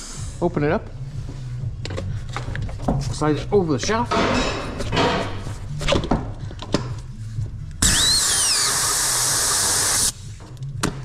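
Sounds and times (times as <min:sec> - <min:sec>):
compressed air hissing: 0:07.9 - 0:10.2.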